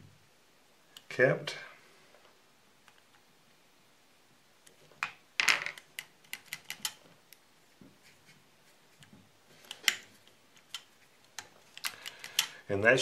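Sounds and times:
small metal clicks: 5.7 - 7.4, 9.0 - 12.6.

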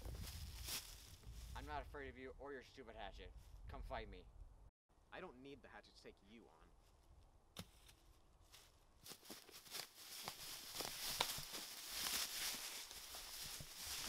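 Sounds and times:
feet crunching through dry leaves: 0.0 - 1.5, 7.7 - 14.0.

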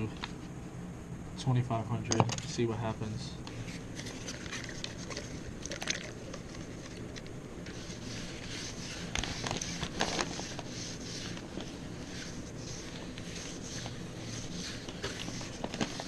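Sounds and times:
sandpaper scrubbing by hand: 7.6 - 16.0.

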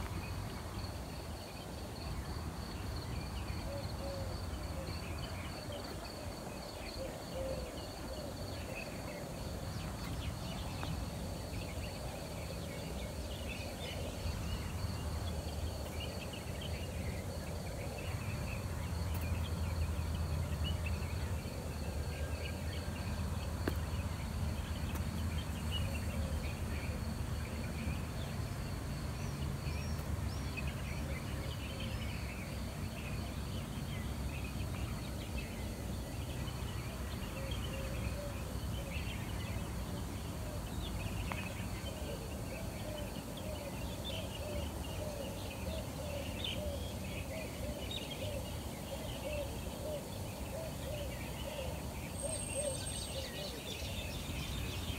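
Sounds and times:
city traffic rumble: 0.0 - 54.9
small birds chirping: 0.0 - 54.9.

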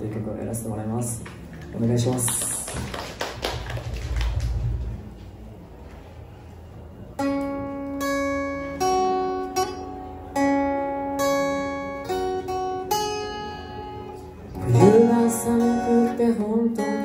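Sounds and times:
acoustic guitar chords: 7.2 - 17.0.

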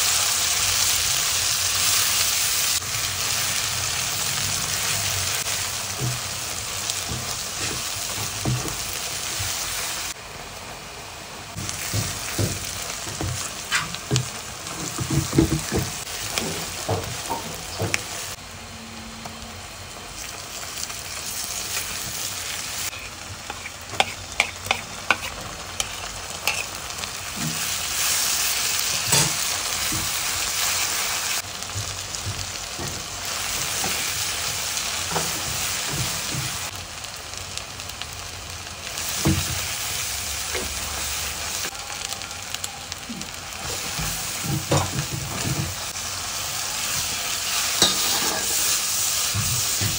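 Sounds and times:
onions sizzling in hot oil: 0.0 - 49.9
spatula tapping and scraping pan: 22.9 - 26.7.

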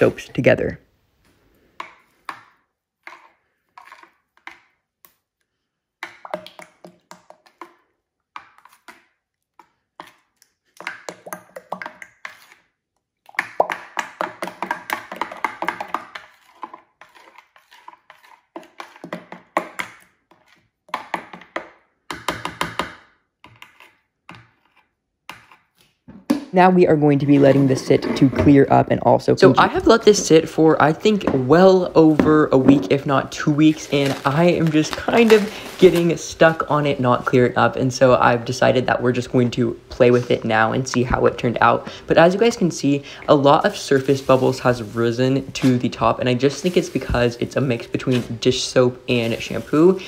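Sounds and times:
spoon scraping glass bowl: 3.0 - 4.6, 11.4 - 12.7, 14.5 - 19.6, 23.5 - 25.7, 27.3 - 28.6.

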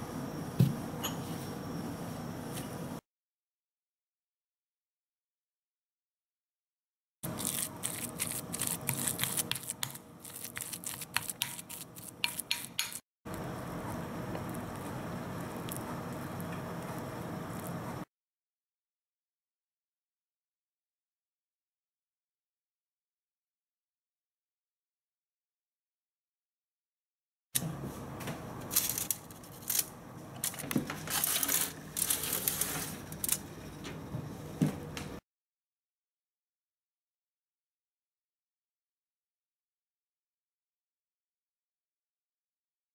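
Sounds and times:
aluminium foil crinkling: 7.3 - 12.1, 28.7 - 33.4
spoon clicking and scraping glass bowl: 7.3 - 13.0.

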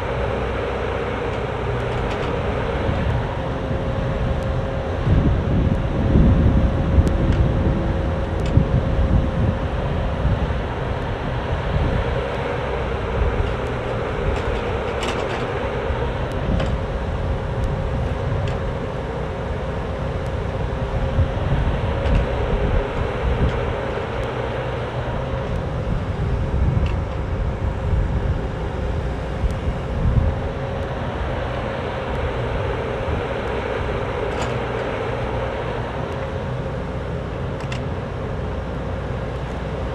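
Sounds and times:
excavator diesel engine running: 0.0 - 39.9
excavator bucket moving dirt: 0.1 - 5.0, 12.1 - 19.2.

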